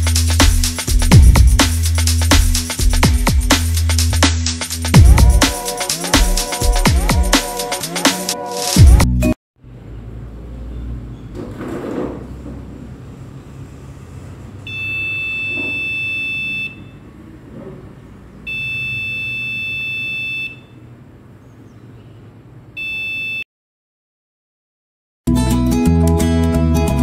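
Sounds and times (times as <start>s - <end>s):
high-pitched buzzer beeps: 14.7s - 17.0s, 18.5s - 20.8s, 22.8s - 23.4s.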